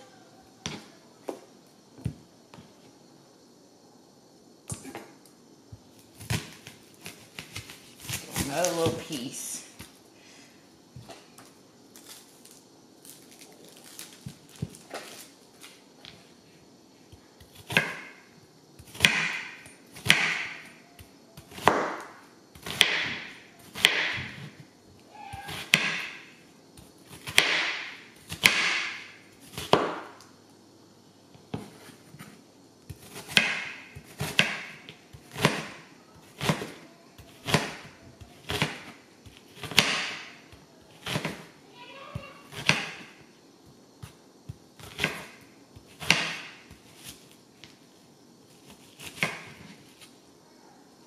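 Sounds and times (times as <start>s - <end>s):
knife chopping onion on board: 17.4s - 18.2s, 18.8s - 20.7s, 21.4s - 24.6s, 25.2s - 26.2s, 27.1s - 30.1s, 31.5s - 41.5s, 42.1s - 43.1s, 44.8s - 47.2s, 48.7s - 50.0s.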